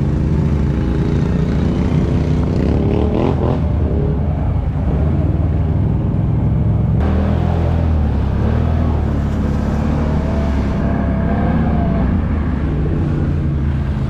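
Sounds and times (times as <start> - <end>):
atv engine running: 0.0 - 10.8.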